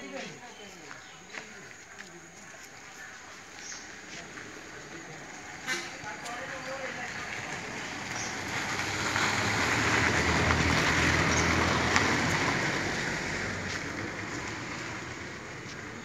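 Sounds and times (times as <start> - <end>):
vehicle passing by: 4.4 - 16.0.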